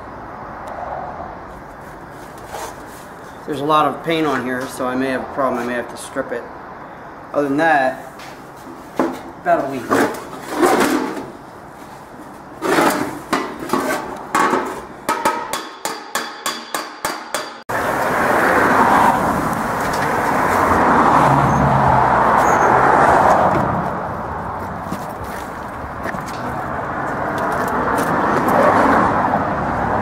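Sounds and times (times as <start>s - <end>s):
hammer striking steel panel: 14.4s - 17.6s.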